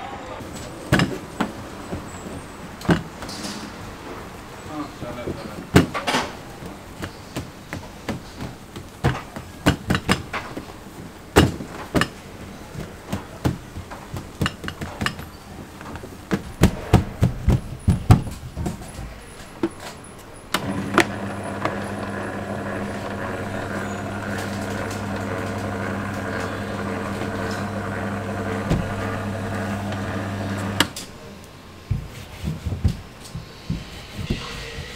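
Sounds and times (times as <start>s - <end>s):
dough sheeter motor humming: 20.6s - 31.0s.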